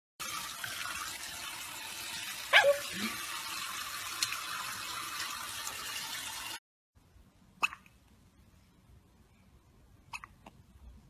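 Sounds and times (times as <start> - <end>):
water running from faucet: 0.2 - 6.6.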